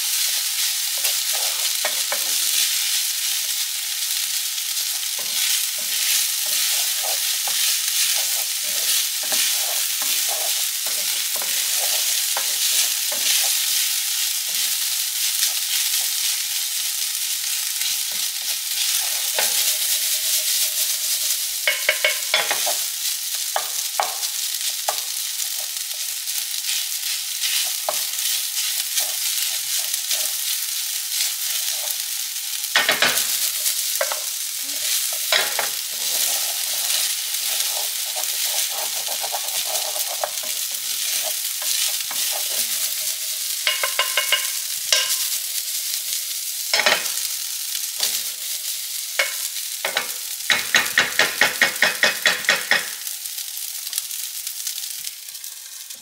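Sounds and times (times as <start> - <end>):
rice sizzling in a frying pan: 0.0 - 56.0
spatula scraping a pan: 4.7 - 16.6, 17.6 - 32.1, 32.7 - 45.6.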